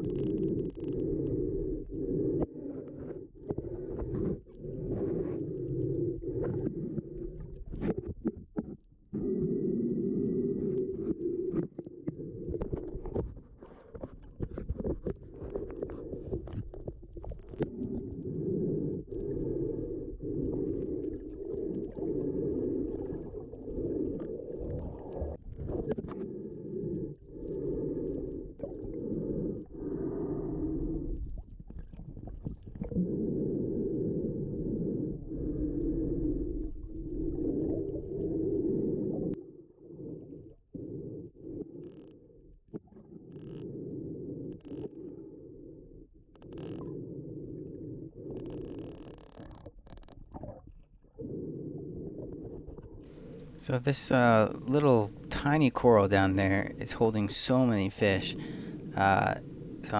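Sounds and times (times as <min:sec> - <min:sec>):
underwater clicks and crackles: 0:00.0 - 0:33.2, 0:41.4 - 0:59.9
underwater rumbling wash: 0:51.2 - 0:59.9.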